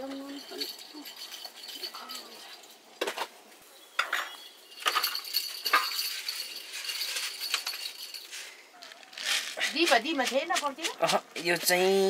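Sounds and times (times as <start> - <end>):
metal bowls and plates clinking: 0.0 - 3.3, 4.0 - 8.3.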